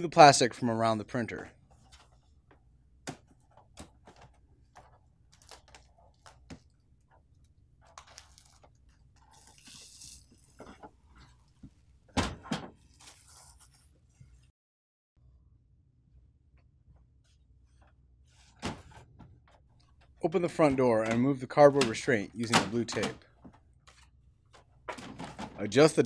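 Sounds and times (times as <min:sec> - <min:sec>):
plastic film crinkling: 0:07.9 - 0:10.6.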